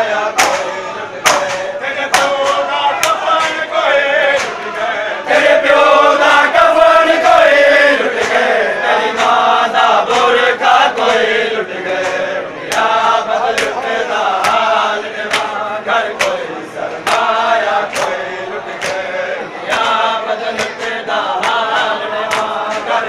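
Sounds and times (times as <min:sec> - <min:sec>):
men chanting in unison: 0:00.0 - 0:23.0
hands slapping chests: 0:00.4 - 0:03.7, 0:04.3 - 0:04.7, 0:12.0 - 0:15.6, 0:16.2 - 0:16.4, 0:17.0 - 0:18.2, 0:18.8 - 0:22.9.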